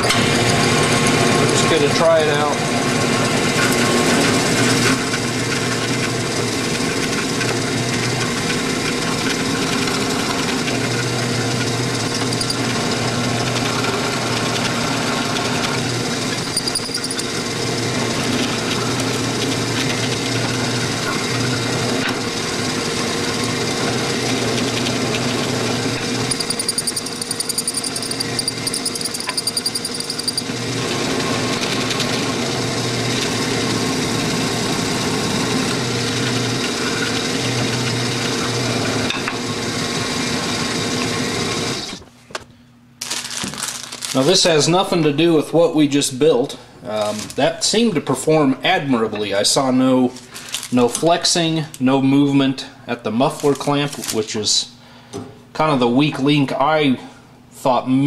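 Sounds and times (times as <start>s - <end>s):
drill press motor running: 0.0s - 42.0s.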